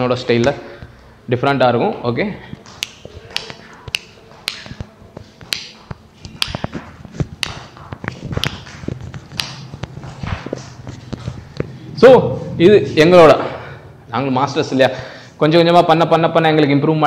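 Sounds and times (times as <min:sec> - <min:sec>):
finger snaps: 0:02.6 - 0:06.7
dance footsteps on wooden floor: 0:04.2 - 0:11.8.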